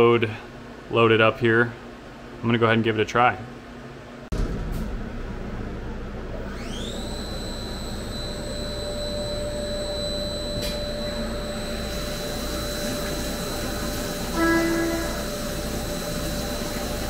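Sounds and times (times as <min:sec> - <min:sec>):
mill spindle whine: 0:04.4 - 0:17.0.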